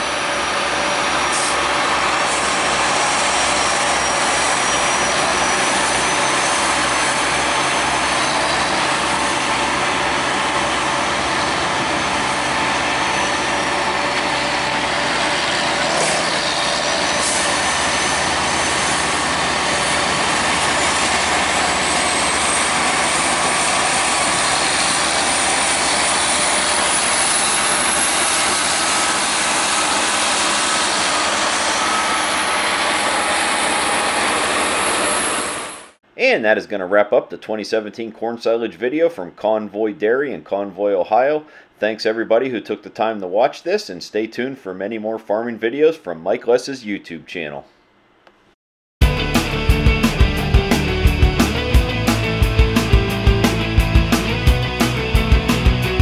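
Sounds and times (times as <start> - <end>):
faint high whine rising in pitch: 0.0 - 36.0
heavy machinery engine running: 0.0 - 36.0, 49.0 - 56.0.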